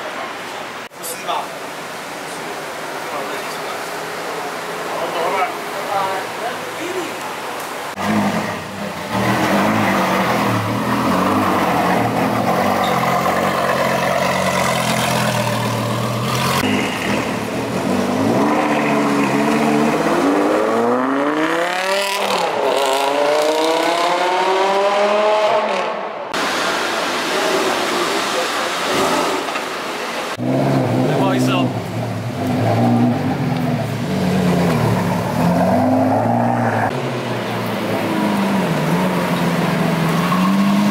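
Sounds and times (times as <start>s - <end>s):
car engine accelerating hard: 8.0s - 26.0s.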